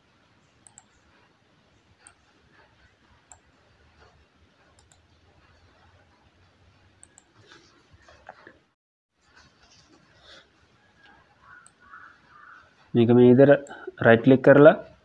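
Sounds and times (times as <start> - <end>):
computer mouse clicks: 0.6 - 1.1, 2.0 - 5.7, 7.0 - 7.6, 11.0 - 12.6.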